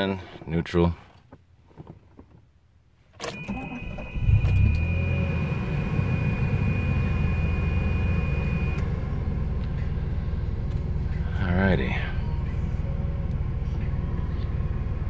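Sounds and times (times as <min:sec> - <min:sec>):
high warning tone: 0:03.4 - 0:08.9
car engine idling: 0:03.5 - 0:15.0.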